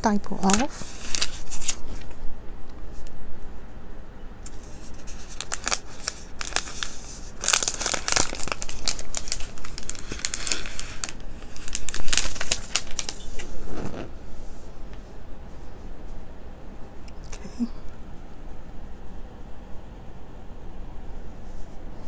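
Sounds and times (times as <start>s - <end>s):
plastic wrap crinkling: 0.2s - 2.1s, 4.5s - 14.2s.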